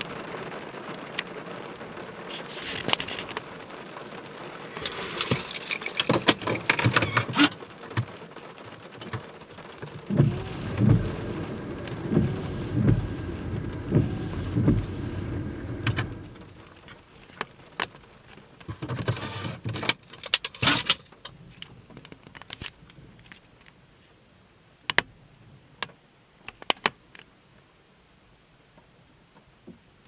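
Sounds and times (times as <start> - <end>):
raindrops ticking on glass: 0.0 - 19.0
heavy rain drumming on car roof: 0.0 - 23.8.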